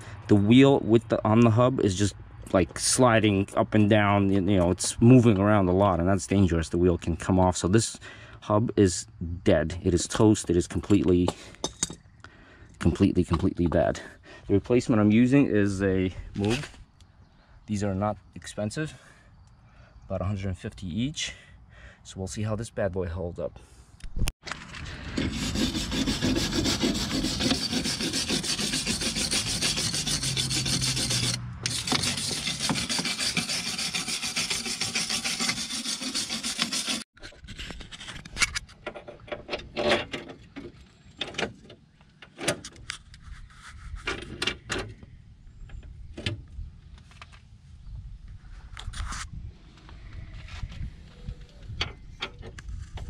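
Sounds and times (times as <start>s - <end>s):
short scrapes and clicks: 24.5s - 38.8s, 48.7s - 49.3s
wire brush scrubbing metal: 24.9s - 37.1s.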